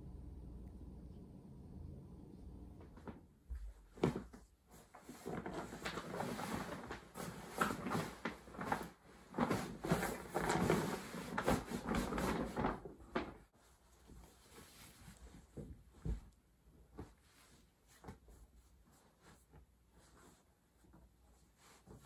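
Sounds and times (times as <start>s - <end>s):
rustling: 3.0s - 22.0s.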